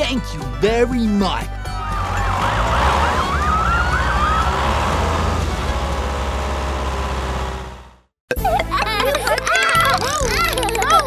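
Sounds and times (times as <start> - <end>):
emergency siren yelp and wail: 1.7 - 6.2.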